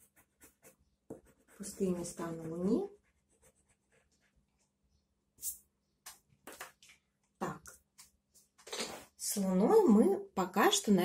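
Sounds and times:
pencil scratching on paper: 0.0s - 4.8s.

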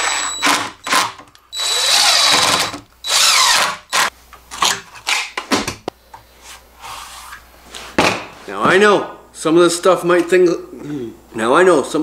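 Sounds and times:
impact driver driving screw: 0.0s - 4.1s.

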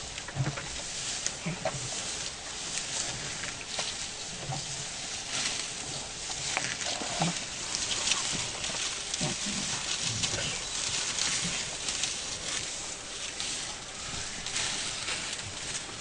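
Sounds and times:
grass rustling and snapping: 0.0s - 16.0s.

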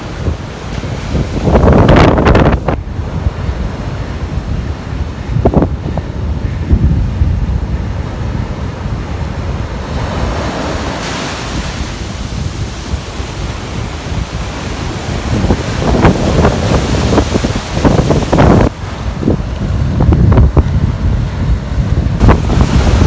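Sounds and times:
surf breaking on beach: 0.0s - 23.0s
wind rumble on microphone: 0.0s - 23.0s
water splashing around wader: 22.2s - 23.0s.

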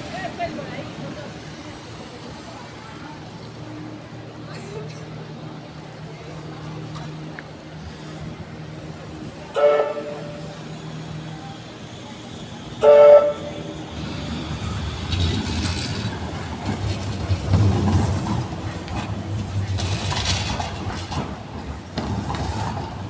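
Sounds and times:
tram rumbling on rails: 0.0s - 23.0s
tram warning horn: 9.3s - 10.8s, 12.6s - 14.1s.

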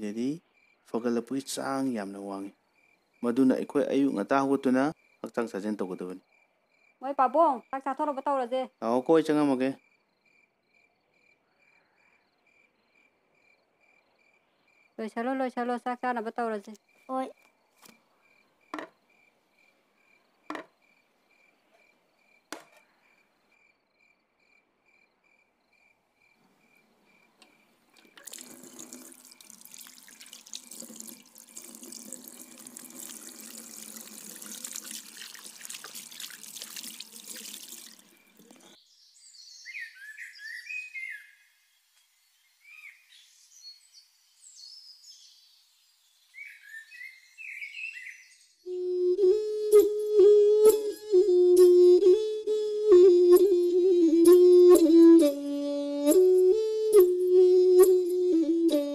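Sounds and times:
cricket chirping: 0.0s - 49.4s
sharp knocks: 18.7s - 19.0s, 20.5s - 20.8s, 22.5s - 22.9s
tap running into washbasin: 28.0s - 38.7s
hands washing under water: 28.0s - 38.8s.

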